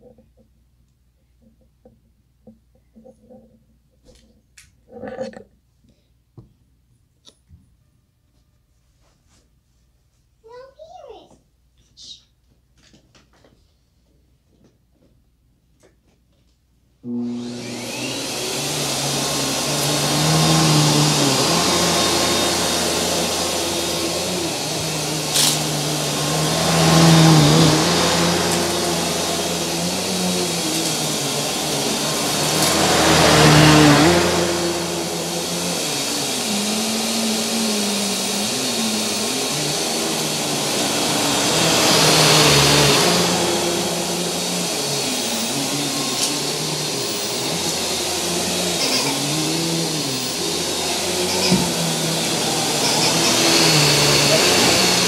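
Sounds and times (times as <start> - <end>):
vacuum cleaner running on carpet: 17.0 - 55.0.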